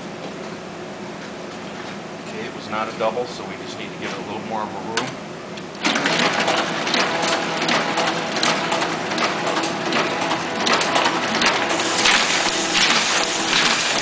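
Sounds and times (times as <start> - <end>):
printing press clattering: 5.8 - 14.0.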